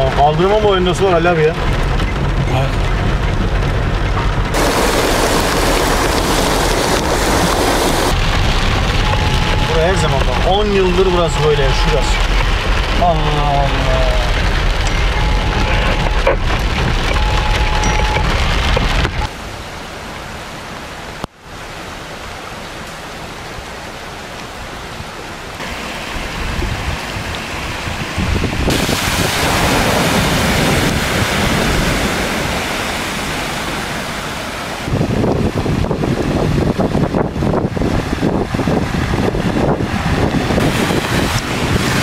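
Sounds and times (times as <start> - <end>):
low car rumble: 0.0 - 21.3
heavy rain: 0.0 - 42.0
running floodwater: 0.0 - 42.0.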